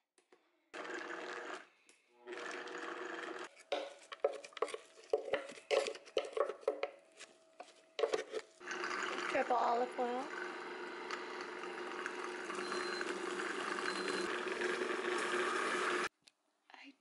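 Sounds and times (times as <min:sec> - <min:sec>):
blender running: 0:00.7 - 0:03.5, 0:08.6 - 0:16.1
wooden spoon scraping blender jar: 0:03.5 - 0:09.5.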